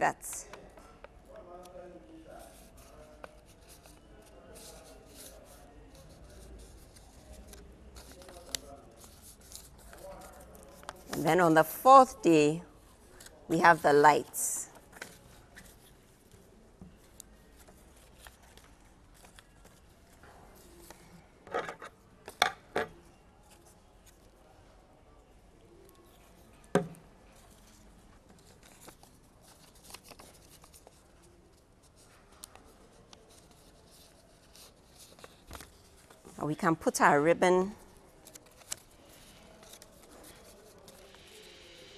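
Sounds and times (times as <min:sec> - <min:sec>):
paper rustling: 0:27.3 - 0:36.3, 0:38.1 - 0:41.1.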